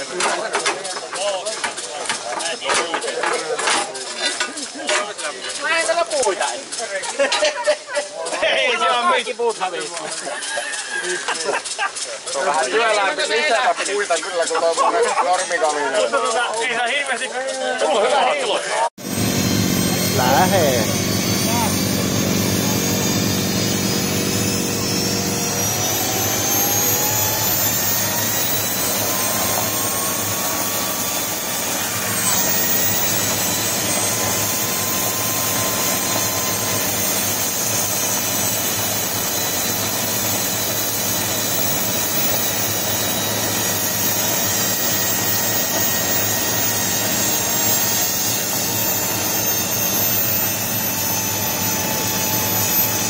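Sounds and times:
turbocharger high whine: 0:19.0 - 0:53.0.

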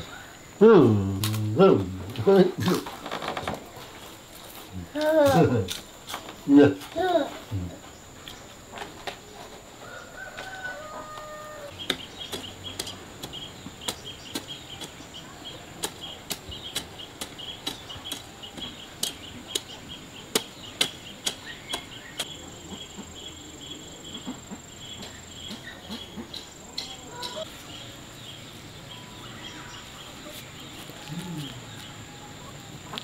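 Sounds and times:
rapid insect chirping: 0:04.0 - 0:33.0
high insect whine: 0:20.0 - 0:33.0
chicken clucking: 0:25.4 - 0:27.6.

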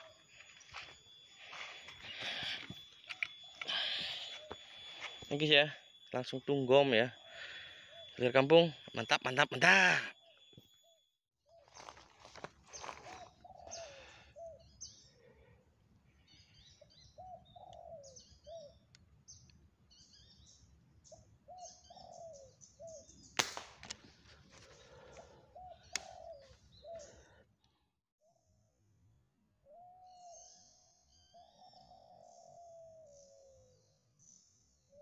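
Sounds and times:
doves cooing: 0:00.0 - 0:05.6, 0:06.7 - 0:09.2, 0:11.6 - 0:15.6, 0:17.2 - 0:18.8, 0:21.5 - 0:23.1, 0:24.5 - 0:27.4, 0:31.3 - 0:33.8
small birds chirping: 0:00.0 - 0:15.5, 0:16.1 - 0:23.4, 0:24.5 - 0:27.7
air rifle shot: 0:23.4 - 0:24.0.

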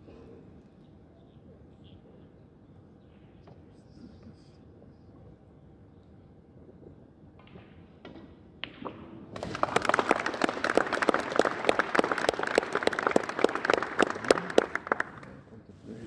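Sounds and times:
audience applauding: 0:09.4 - 0:15.4.

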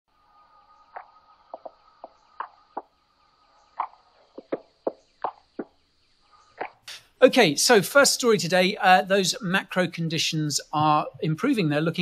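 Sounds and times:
faint steady high tone: 0:00.1 - 0:02.0.

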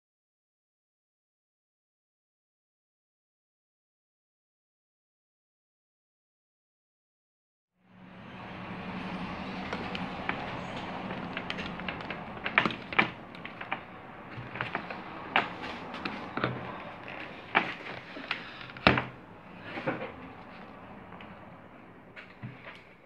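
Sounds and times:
low hum and hiss: 0:07.9 - 0:23.0.

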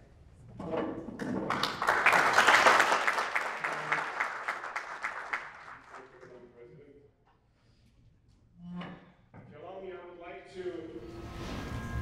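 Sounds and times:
audience applauding: 0:01.4 - 0:06.4.

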